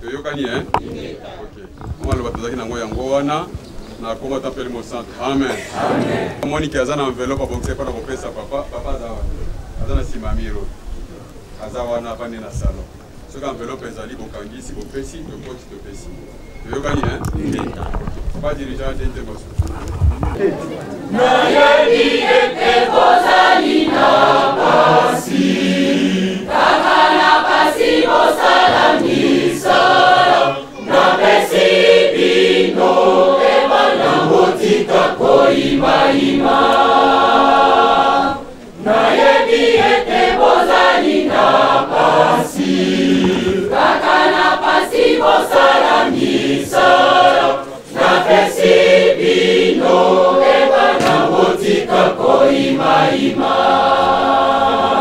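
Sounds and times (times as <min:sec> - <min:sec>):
choir singing a hymn: 0:00.4 - 0:01.5, 0:04.9 - 0:06.6, 0:21.0 - 0:55.0.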